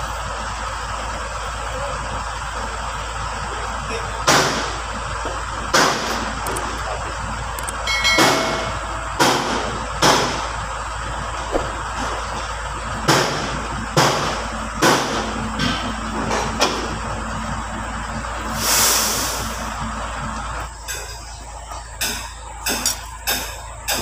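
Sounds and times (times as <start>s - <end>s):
sharp metallic knocks: 7.8s - 10.5s, 13.0s - 16.9s, 20.8s - 21.3s, 22.0s - 24.0s
metal discs clanking: 20.8s - 24.0s.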